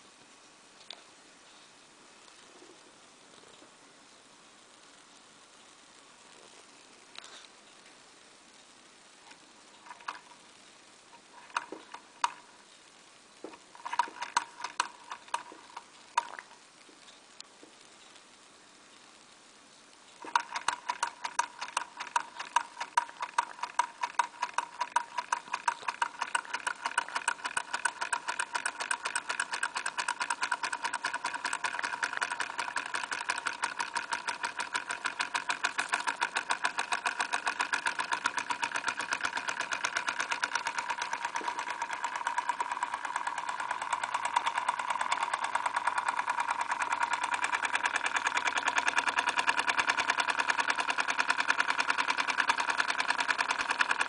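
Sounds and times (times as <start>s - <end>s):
flywheel turned by hand: 9.3s - 10.5s, 11.1s - 12.7s, 13.4s - 16.6s, 20.1s - 54.0s
toy steam engine running: 11.4s - 12.4s, 13.7s - 16.3s, 20.2s - 54.0s.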